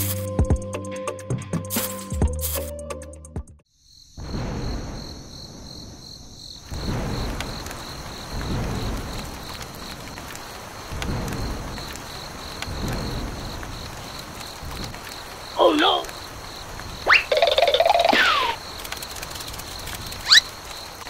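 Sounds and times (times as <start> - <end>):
crickets chirping: 3.6 - 21.0
thunder rolling: 4.1 - 20.7
steady rain: 4.2 - 21.0.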